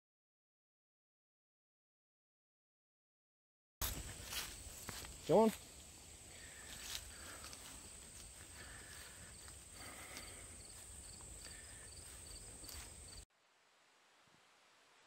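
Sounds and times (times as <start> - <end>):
insects chirping: 3.8 - 13.2
soft footsteps on grass: 3.8 - 13.2
high-pitched insect drone: 4.1 - 13.2.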